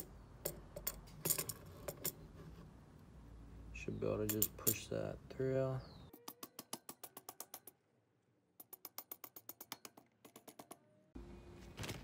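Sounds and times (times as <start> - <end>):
rubber mallet tapping metal: 6.2 - 7.8, 8.6 - 10.9.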